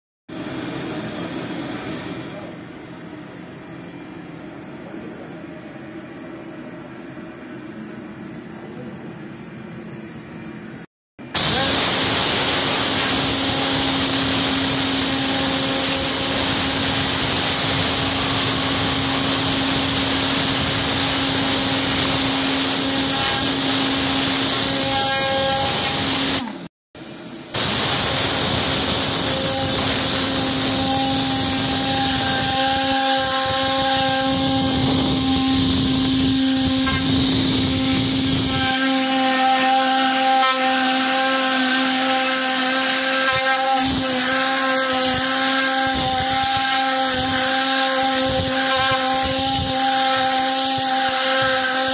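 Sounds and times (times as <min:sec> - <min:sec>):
air cleaning gun hissing: 0:11.3 - 0:51.9
steady hum: 0:11.4 - 0:51.9.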